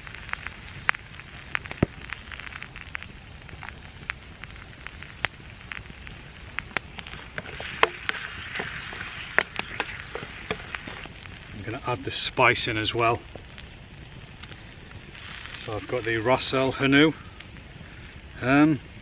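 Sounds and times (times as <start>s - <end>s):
campfire crackling and popping: 0.0s - 19.0s
food sizzling in oil: 0.0s - 19.0s
wooden spatula stirring pan: 7.2s - 11.1s.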